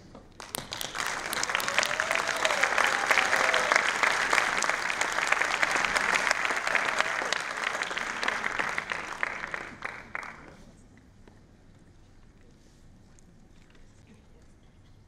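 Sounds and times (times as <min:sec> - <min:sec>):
audience applauding: 0:00.4 - 0:10.6.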